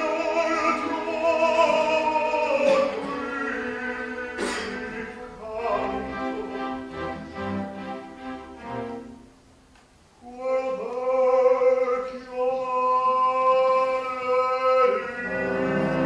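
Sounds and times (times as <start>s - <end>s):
orchestra chords: 0.0s - 9.7s, 14.9s - 16.0s.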